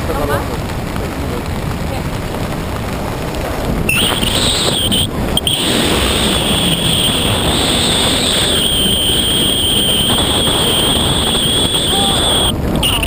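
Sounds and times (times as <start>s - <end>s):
wind rushing over microphone: 0.0s - 13.0s
thin high whistle: 3.9s - 13.0s.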